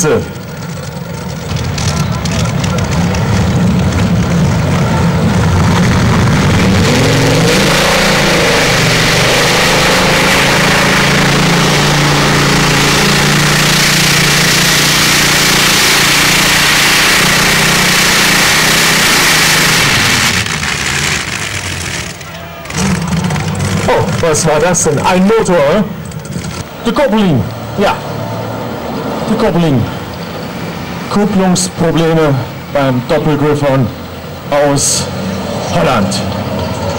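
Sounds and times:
commentator speaking: 0.0s - 0.4s, 23.8s - 25.9s, 26.8s - 28.0s, 29.2s - 30.0s, 31.1s - 36.3s
aircraft engines rumbling and revving: 0.0s - 36.9s.

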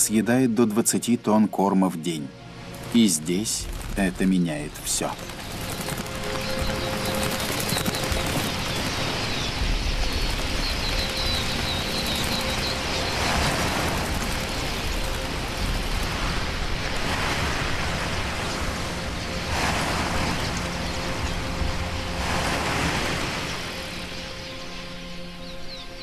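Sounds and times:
birds chirping: 0.0s - 26.0s
flock of birds wings roaring: 3.7s - 24.3s.

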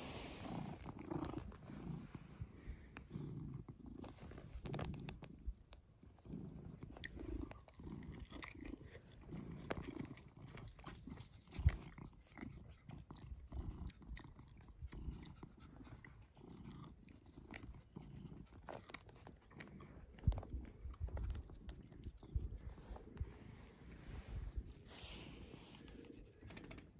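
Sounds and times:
cat purring: 0.0s - 26.9s
chewing clicks: 6.8s - 22.8s.

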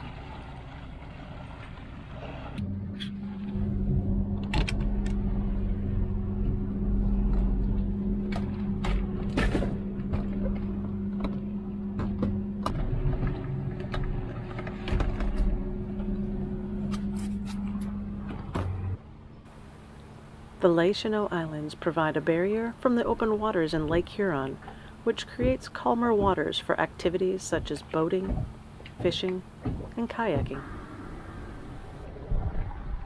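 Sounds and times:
motorboat engine running: 0.0s - 33.0s.

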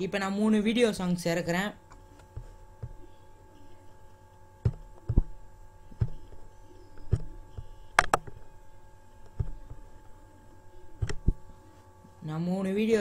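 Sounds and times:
faint electrical hum: 0.0s - 13.0s
computer mouse clicking: 5.9s - 8.5s, 11.0s - 11.4s.

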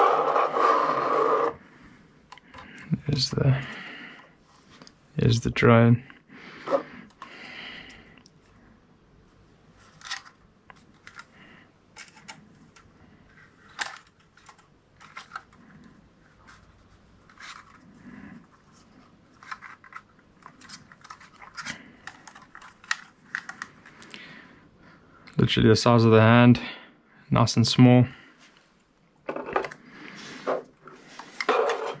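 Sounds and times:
light plastic clicks and scraping: 9.8s - 11.4s, 18.7s - 24.1s.

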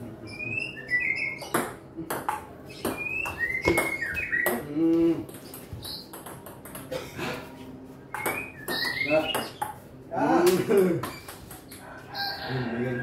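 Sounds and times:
bird chirps: 0.2s - 1.6s, 2.7s - 4.7s, 8.1s - 9.7s.

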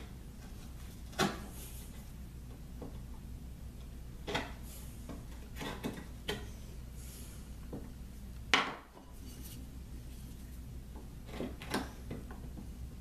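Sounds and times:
chisel paring and scraping wood: 5.2s - 6.5s, 11.0s - 12.5s.

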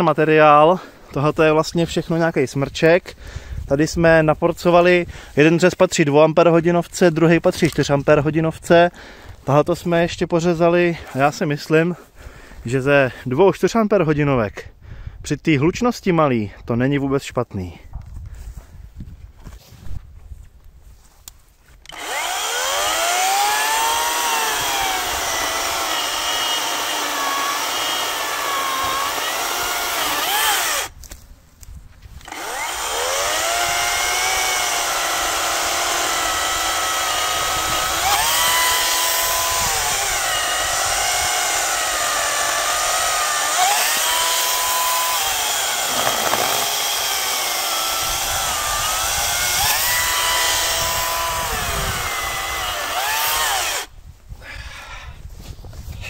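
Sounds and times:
chainsaw cutting wood: 21.8s - 31.0s, 32.2s - 53.9s.

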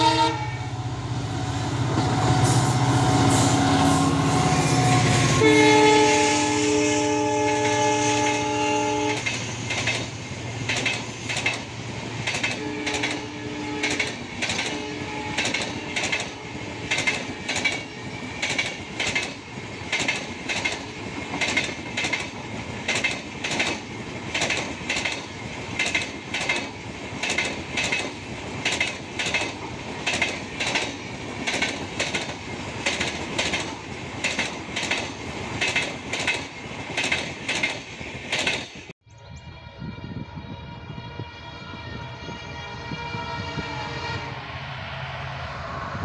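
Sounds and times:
train wheels rushing on rail: 0.0s - 39.0s
wheels clacking over rail joints: 9.1s - 38.9s.

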